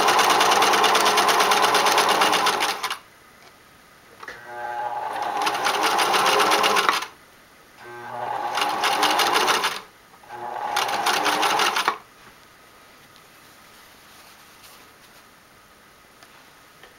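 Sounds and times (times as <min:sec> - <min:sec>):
sewing machine stitching: 0:00.0 - 0:03.0, 0:04.4 - 0:07.1, 0:07.8 - 0:12.0.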